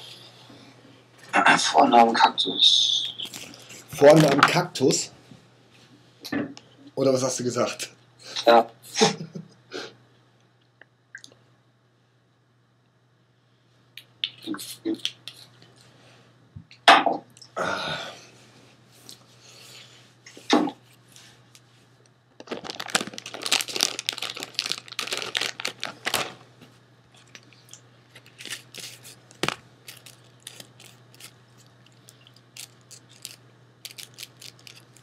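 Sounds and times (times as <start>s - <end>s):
faint low hum: 0.0s - 35.0s
paper rustling: 22.4s - 26.4s, 28.1s - 31.7s.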